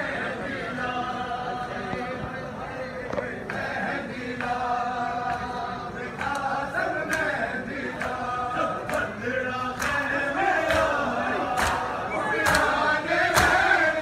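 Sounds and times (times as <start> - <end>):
men chanting together: 0.0 - 14.0
sharp slaps: 10.7 - 13.7.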